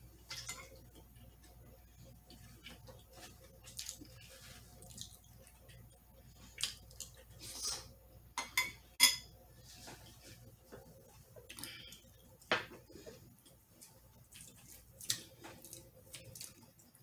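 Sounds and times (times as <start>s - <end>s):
chewing and mouth sounds: 2.2s - 7.9s, 13.3s - 17.0s.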